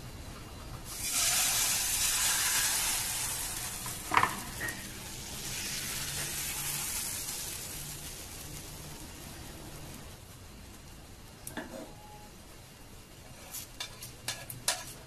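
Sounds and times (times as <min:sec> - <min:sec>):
batter sizzling in frying pan: 0:00.9 - 0:10.2, 0:13.5 - 0:15.0.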